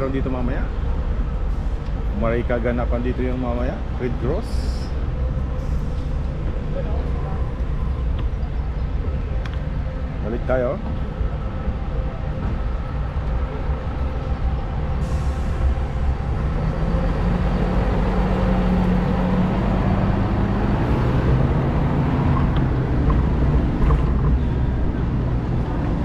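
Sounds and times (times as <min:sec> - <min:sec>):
street traffic rumble: 0:00.0 - 0:26.0
vehicle engine humming: 0:00.0 - 0:26.0.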